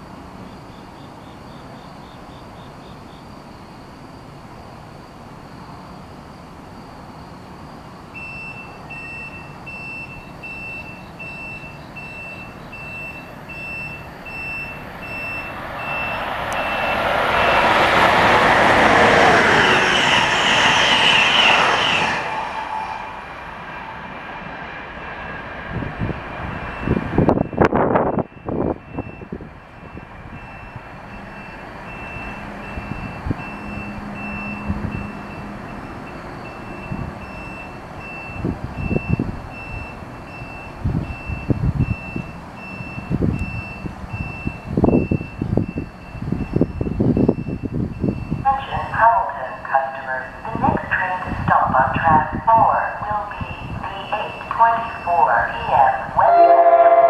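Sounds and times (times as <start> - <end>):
train passing at speed: 0.0 - 57.0
short high beeps: 8.2 - 17.7
wind gusts on microphone: 11.4 - 35.4, 36.5 - 57.0.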